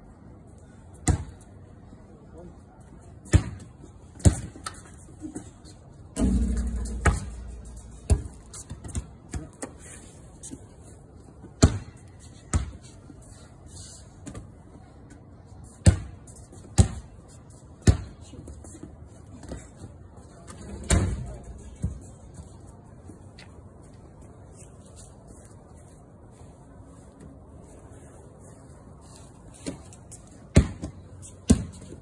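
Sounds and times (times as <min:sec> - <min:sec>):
deep thud: 0:06.2 - 0:08.3
basketball bouncing on concrete: 0:06.2 - 0:09.6, 0:30.5 - 0:32.0.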